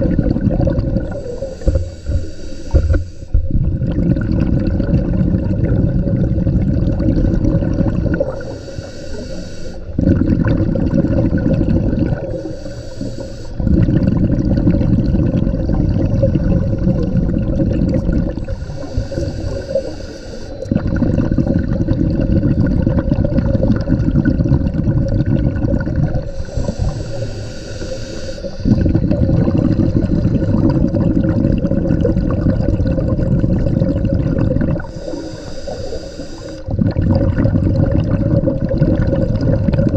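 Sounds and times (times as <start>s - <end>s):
exhaled bubbles gurgling: 0.0s - 39.9s
regulator hissing inhales: 1.1s - 3.4s, 8.3s - 10.0s, 12.3s - 13.7s, 18.4s - 20.7s, 26.3s - 28.7s, 34.8s - 36.7s.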